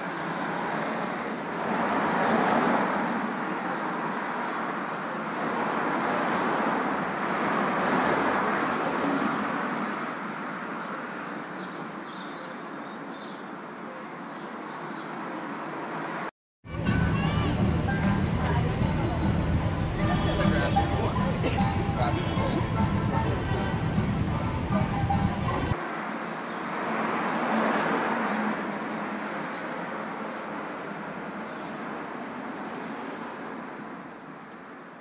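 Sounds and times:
road traffic: 0.0 - 35.0
small birds chirping: 9.2 - 16.3.

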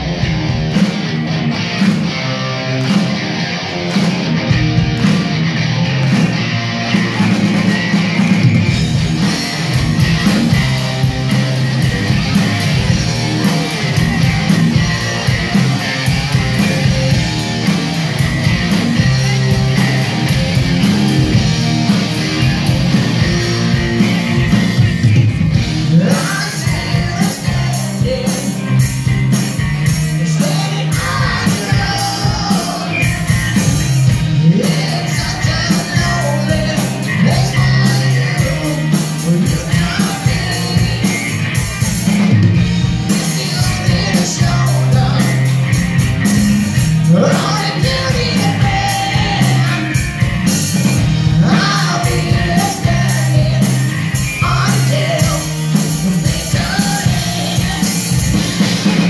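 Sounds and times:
drums: 0.0 - 59.0
live rock band playing: 0.0 - 59.0
person singing: 25.9 - 28.8, 30.1 - 33.5, 34.4 - 41.4, 43.0 - 45.6, 47.0 - 50.1, 51.3 - 59.0.

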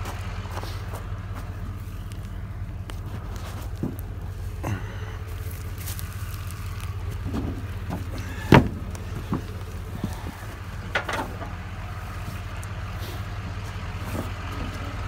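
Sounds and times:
vehicle engine idling: 0.0 - 15.0
heavy thud on wooden deck: 7.4 - 9.5.

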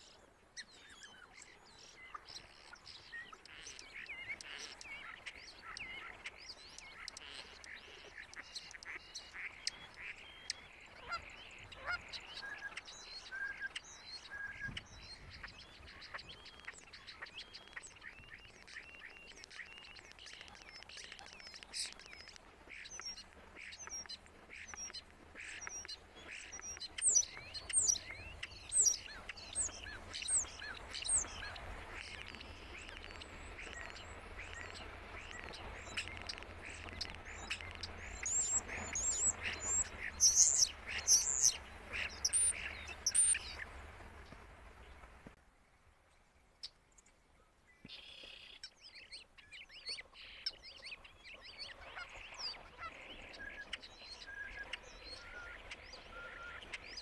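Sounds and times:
starling singing: 25.6 - 43.6.

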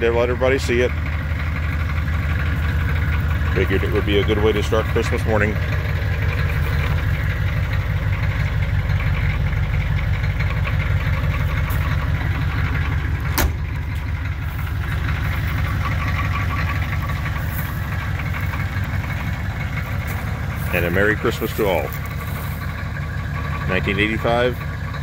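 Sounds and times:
diesel engine idling: 0.0 - 25.0
car door shutting: 13.3 - 13.7.

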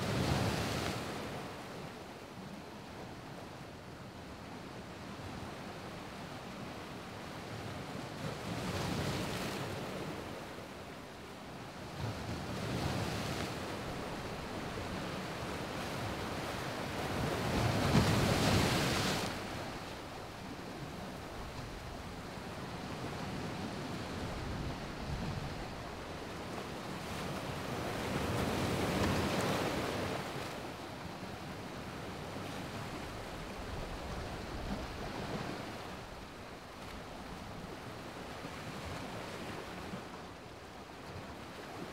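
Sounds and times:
ocean waves breaking: 12.1 - 40.1.

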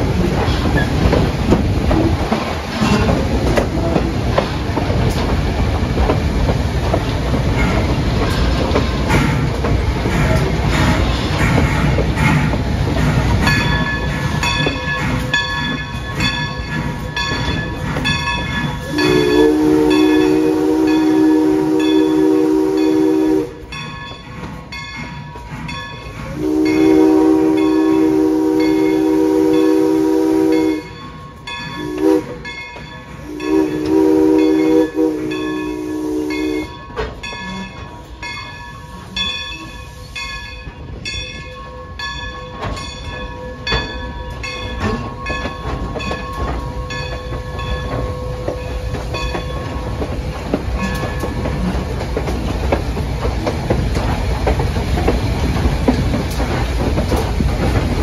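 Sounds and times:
steam locomotive chime whistle: 13.5 - 24.3, 26.0 - 49.8.

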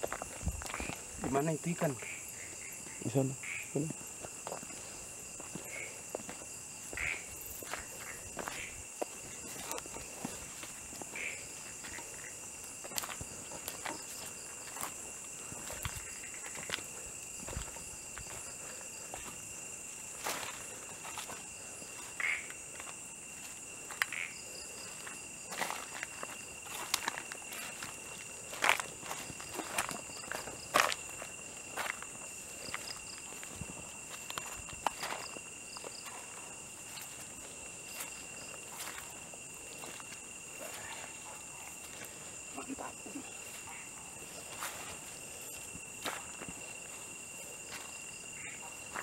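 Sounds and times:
footsteps on grass and dry leaves: 0.0 - 2.9, 4.0 - 49.0
night insects trilling: 0.0 - 49.0
footsteps on dry leaves: 24.8 - 41.2.

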